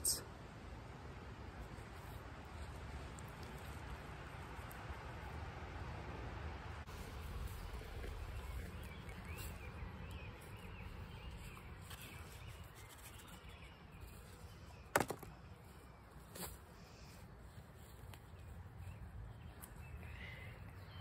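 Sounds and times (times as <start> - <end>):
birds chirping: 6.9 - 17.6, 18.2 - 21.0.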